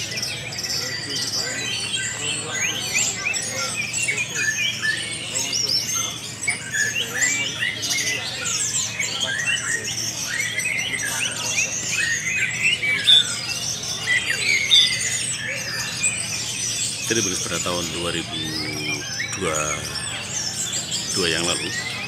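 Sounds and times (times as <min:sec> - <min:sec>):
songbirds singing: 0:00.0 - 0:22.0.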